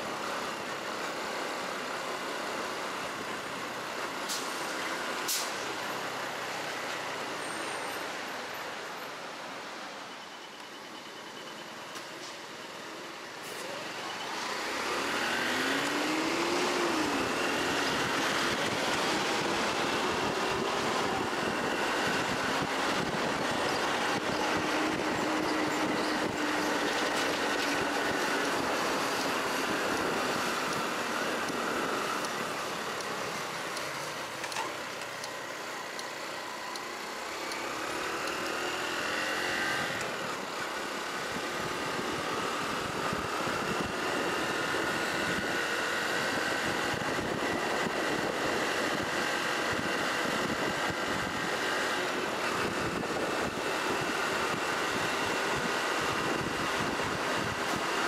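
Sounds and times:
wind and road noise: 0.0 - 58.0.

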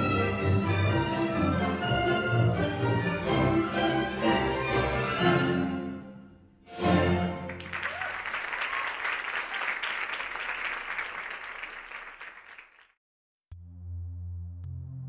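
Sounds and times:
audience applauding: 7.3 - 13.0.

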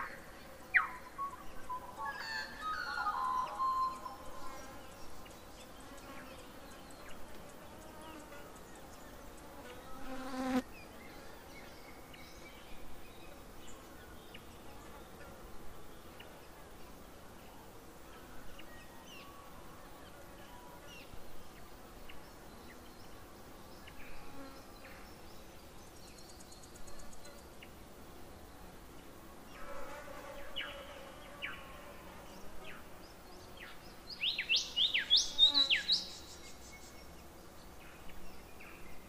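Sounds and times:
insect buzz: 0.0 - 39.0.

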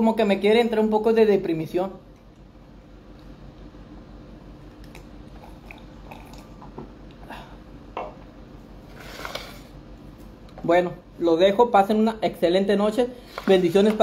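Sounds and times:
man swallowing a drink: 4.8 - 7.4
glass set down on wooden table: 8.0 - 8.2.

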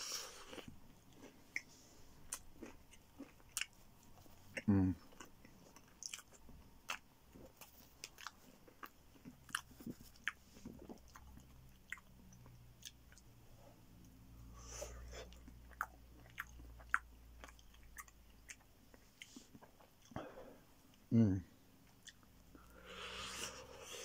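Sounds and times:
crunchy pizza chewing: 0.0 - 13.3, 14.6 - 20.2.

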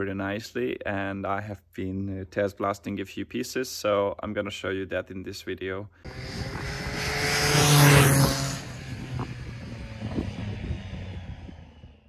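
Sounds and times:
vehicle engine passing by: 6.1 - 12.0.

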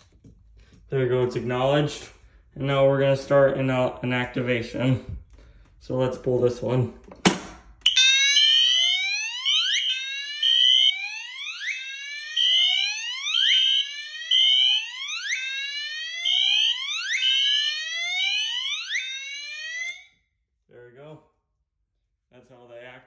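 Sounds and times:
fire alarm horn beeps: 7.8 - 20.1
fire alarm whoop sweeps: 7.9 - 20.1.

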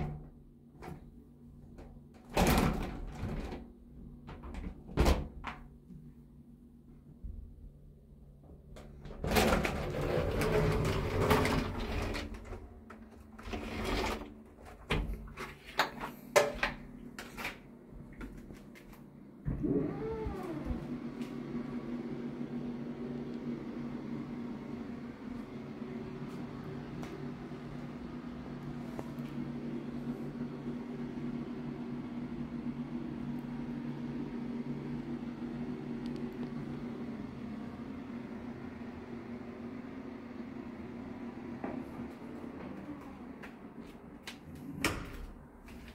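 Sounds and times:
exhaust fan humming: 0.0 - 45.9
folding door panels sliding and rattling: 9.0 - 15.2.

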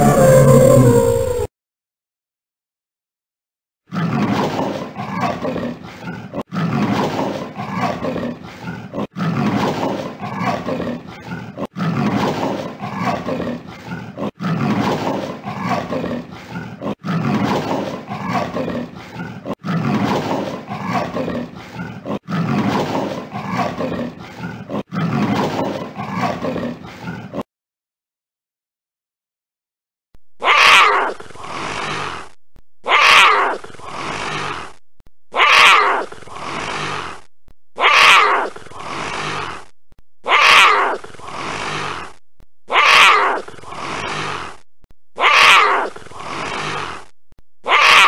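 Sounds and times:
leopard calling: 0.0 - 1.5, 30.4 - 43.8, 45.2 - 46.2, 46.9 - 48.0.

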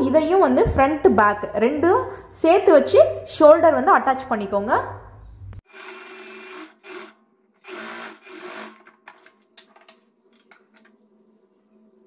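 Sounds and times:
sewing machine stitching: 5.7 - 9.5.

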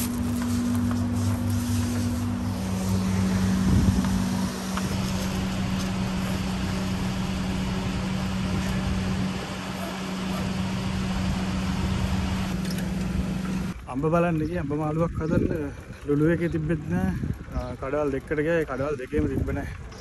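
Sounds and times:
car road and engine noise: 0.0 - 13.8
constant low hum: 0.0 - 20.0.

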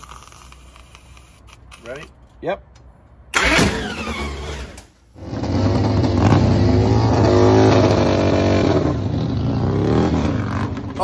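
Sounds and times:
motorcycle engine starting: 3.3 - 11.0
motorcycle engine at high revs: 5.2 - 11.0.

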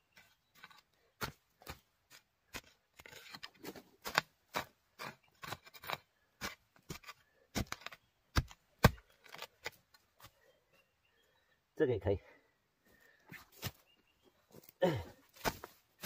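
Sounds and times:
hoe chopping into soil: 2.5 - 9.8, 15.4 - 15.8.

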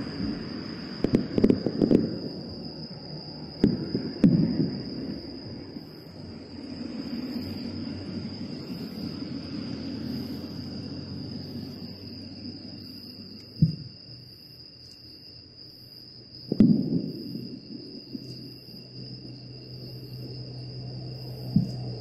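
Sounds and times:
distant fireworks bursting: 0.0 - 9.3, 13.4 - 13.9, 16.4 - 20.3, 21.3 - 22.0
high insect trill: 0.0 - 22.0.

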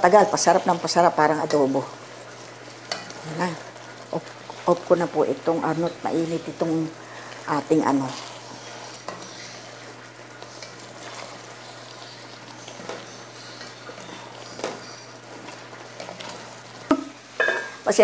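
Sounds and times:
sauce sizzling: 0.0 - 18.0
spatulas scraping and knocking pot: 2.8 - 3.6, 7.7 - 9.8, 10.4 - 17.9.

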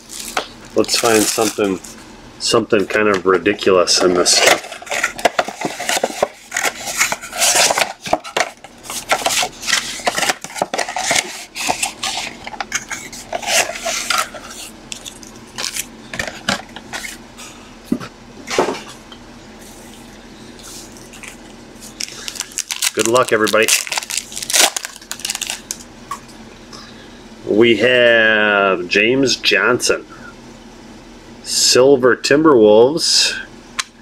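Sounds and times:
cardboard tearing: 0.0 - 1.9, 4.2 - 12.4, 21.9 - 25.7
packaging rustles: 0.0 - 2.0, 2.9 - 17.2, 20.6 - 25.8.

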